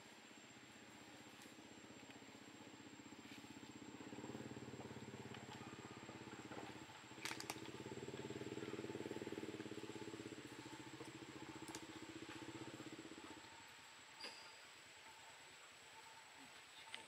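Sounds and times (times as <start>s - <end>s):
small engine idling: 0.1s - 15.9s
sharp clicks: 7.2s - 7.8s.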